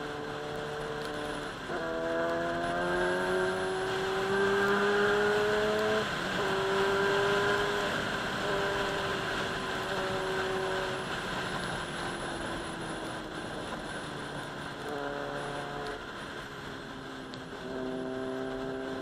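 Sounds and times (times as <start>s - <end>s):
motorcycle engine accelerating: 0.0s - 19.0s.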